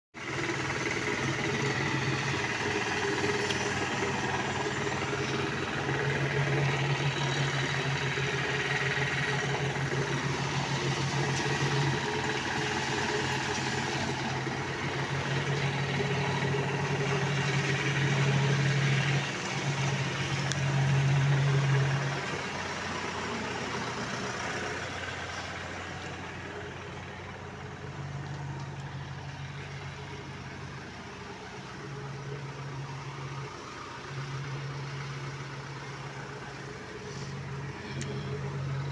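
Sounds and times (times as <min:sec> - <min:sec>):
engine humming steadily: 0:00.2 - 0:38.9.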